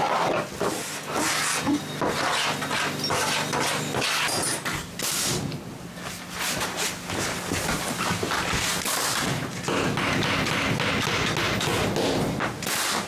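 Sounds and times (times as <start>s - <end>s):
nails hammered into wood: 8.9s - 13.0s.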